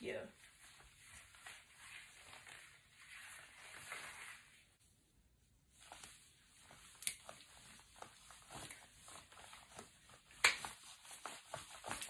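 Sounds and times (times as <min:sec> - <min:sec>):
rustling of handling things: 0:00.1 - 0:04.8, 0:05.7 - 0:12.0.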